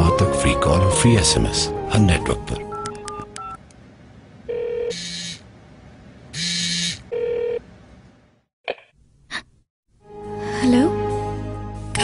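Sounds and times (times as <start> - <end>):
electronic telephone ringing: 4.5 - 5.1, 7.1 - 7.6.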